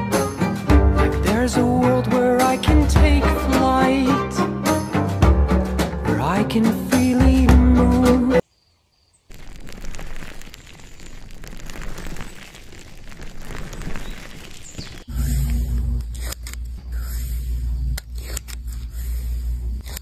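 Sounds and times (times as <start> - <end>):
fingertips crackling on sponge: 9.3 - 15.1
deep low hum: 15.0 - 20.0.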